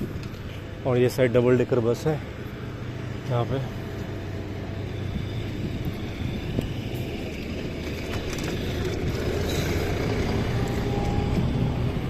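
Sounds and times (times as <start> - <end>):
street traffic: 0.0 - 12.0
vehicle engine hum: 0.0 - 12.0
wind on microphone: 5.0 - 12.0.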